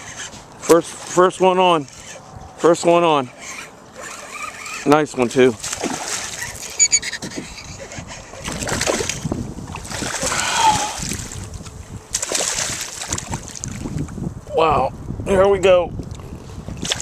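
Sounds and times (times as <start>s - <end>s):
fish thrashing and splashing: 5.6s - 11.5s, 12.1s - 14.0s.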